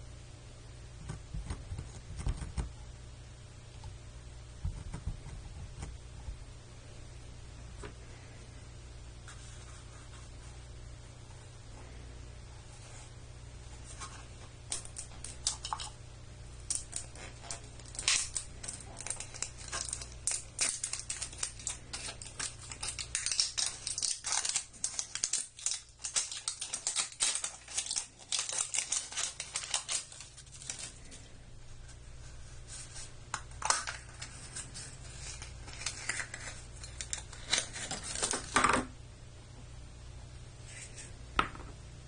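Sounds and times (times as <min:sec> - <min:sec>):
plastic wrap crinkling: 0:13.8 - 0:38.6.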